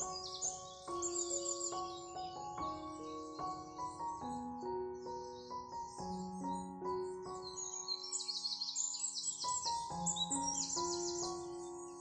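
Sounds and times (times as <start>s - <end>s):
birds singing: 0.0s - 12.0s
soft instrumental music: 0.0s - 12.0s.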